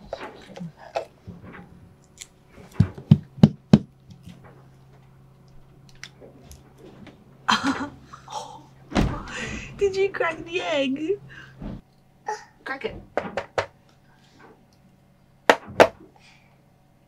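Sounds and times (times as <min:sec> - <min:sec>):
low steady hum: 0:00.0 - 0:17.0
hard objects knocking: 0:02.7 - 0:04.0, 0:12.9 - 0:13.8, 0:15.5 - 0:16.0.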